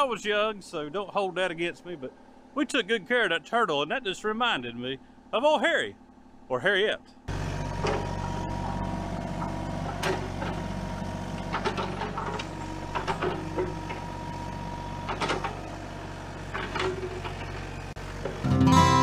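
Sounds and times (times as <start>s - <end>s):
diesel engine running: 0.0s - 19.0s
excavator bucket knocks and clanks: 7.8s - 10.6s, 11.4s - 14.1s, 15.0s - 15.6s.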